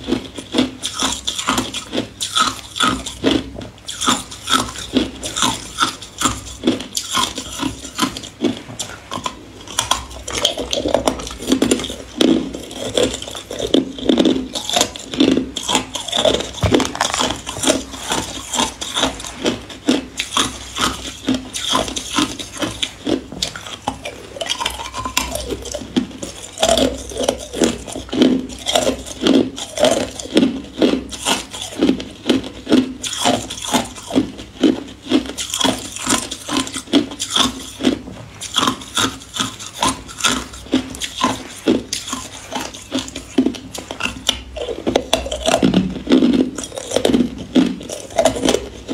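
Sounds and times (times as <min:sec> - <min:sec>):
ice cubes crunched by teeth: 0:12.6 - 0:19.3, 0:44.0 - 0:48.9.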